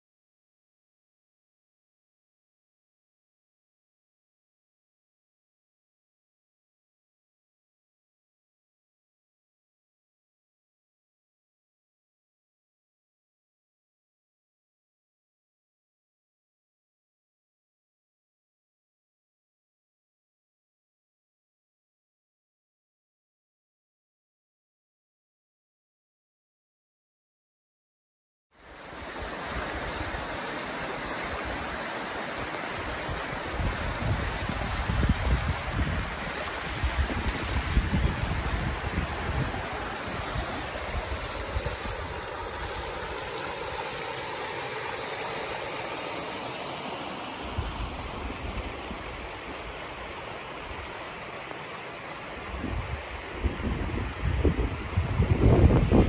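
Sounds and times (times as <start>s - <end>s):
stream rushing over rocks: 28.6s - 56.0s
wind buffeting microphone: 33.1s - 43.2s, 52.4s - 56.0s.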